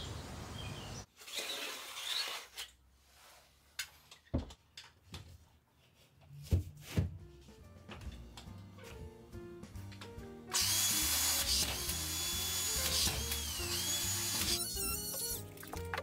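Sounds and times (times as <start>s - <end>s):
power drill whining: 10.5s - 15.4s.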